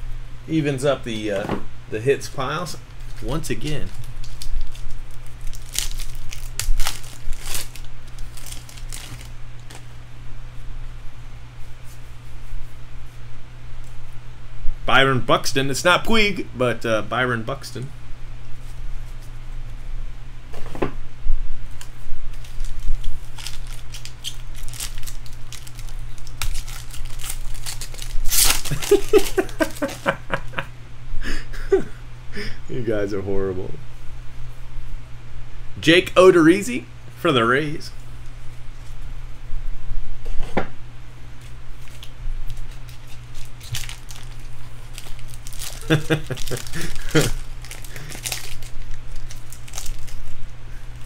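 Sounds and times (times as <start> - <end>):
steady low hum: 0.0 - 51.0
foil wrapper rustling: 3.0 - 9.9, 21.8 - 30.4, 41.7 - 51.0
foil wrapper tearing: 3.1 - 9.8, 22.3 - 30.2, 41.8 - 50.5.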